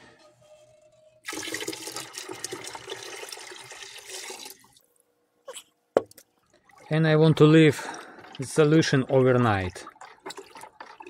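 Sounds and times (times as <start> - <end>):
liquid splashing into bucket: 6.1 - 11.0.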